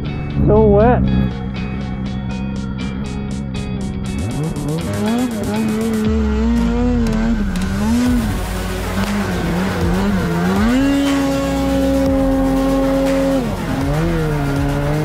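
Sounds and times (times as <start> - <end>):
snowmobile engine revving: 4.0 - 15.0.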